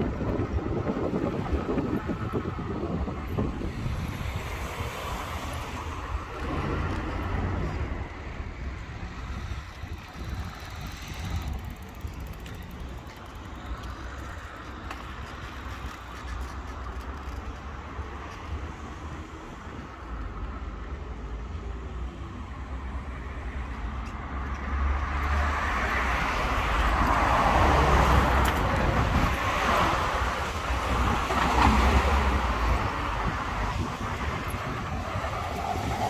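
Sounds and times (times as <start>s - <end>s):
road traffic: 0.0s - 36.0s
wind rumble on microphone: 0.0s - 36.0s
car passing: 24.4s - 36.0s.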